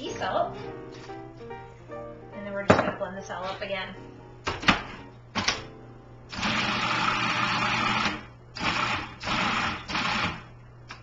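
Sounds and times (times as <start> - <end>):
food processor motor running: 6.3 - 10.5.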